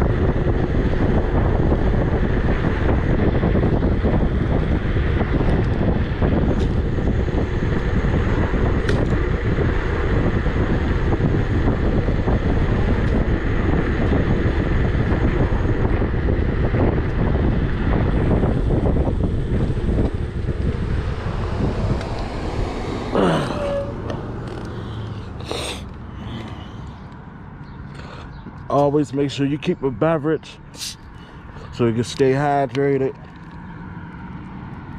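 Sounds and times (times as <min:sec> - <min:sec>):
road and tyre rumble: 0:00.0 - 0:34.9
wind rushing over microphone: 0:00.0 - 0:34.9.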